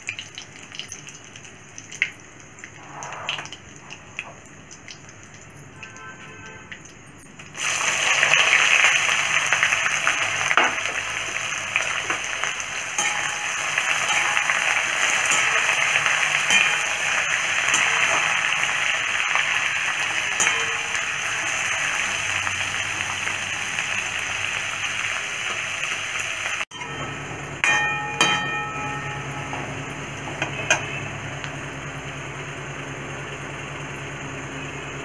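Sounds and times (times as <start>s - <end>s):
onions sizzling in hot oil: 7.5s - 35.0s.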